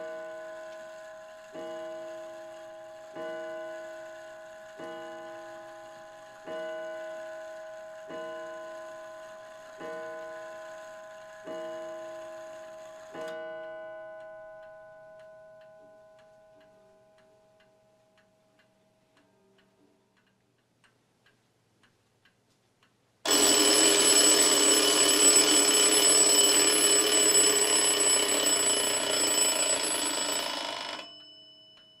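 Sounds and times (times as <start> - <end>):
clock alarm ringing: 0.0 - 13.4, 23.3 - 32.0
clock hour strike: 23.3 - 32.0.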